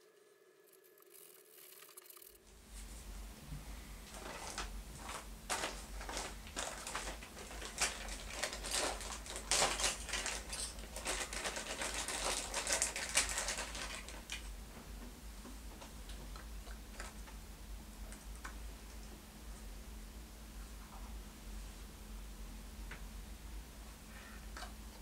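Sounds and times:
plastic bag crinkling: 4.1s - 14.5s.

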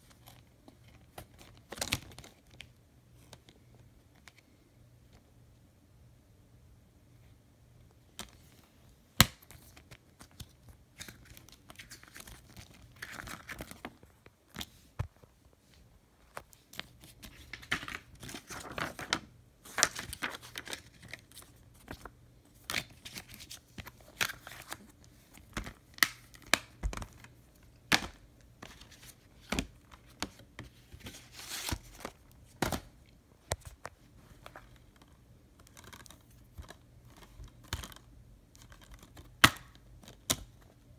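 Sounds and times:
cardboard rustling and scraping: 28.6s - 32.2s.

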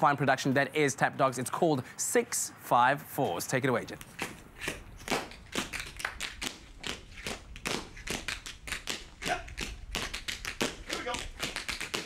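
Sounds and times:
tap shoes striking floor: 4.2s - 12.0s.

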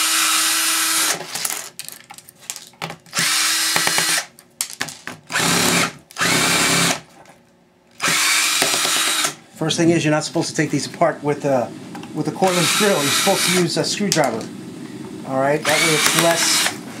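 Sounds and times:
cordless drill whining: 0.0s - 1.4s, 3.1s - 4.3s, 5.3s - 7.0s, 8.0s - 9.4s, 12.4s - 13.7s, 15.6s - 16.8s.

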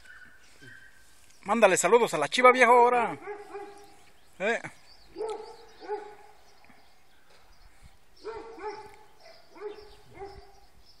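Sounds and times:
dog yipping: 3.2s - 3.9s, 5.2s - 6.4s, 8.2s - 10.6s.

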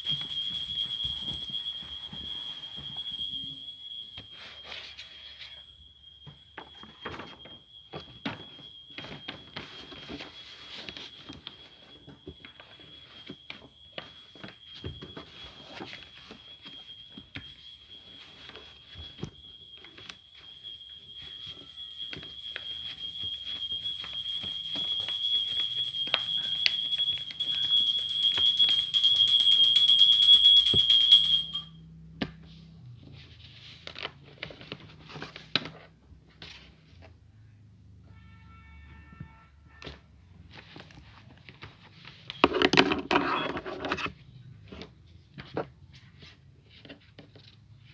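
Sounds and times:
steady high-pitched tone: 0.0s - 31.8s.

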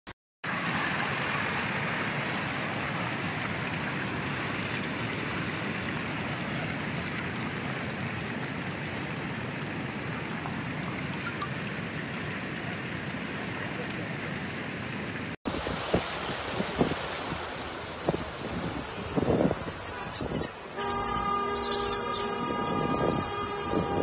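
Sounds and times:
mud and stones rushing down channel: 15.2s - 21.1s.

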